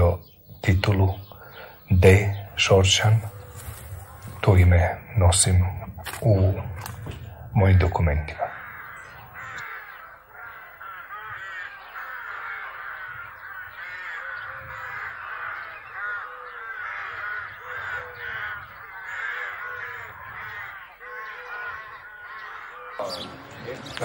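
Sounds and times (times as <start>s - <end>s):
flock of birds calling: 0.0s - 24.0s.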